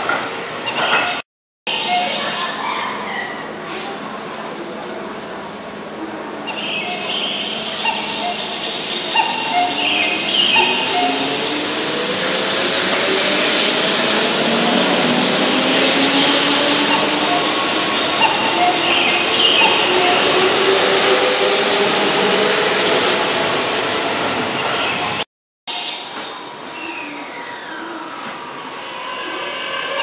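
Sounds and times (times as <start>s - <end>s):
train cars rushing past: 7.3s - 25.2s
electric train motors whining: 8.7s - 24.4s.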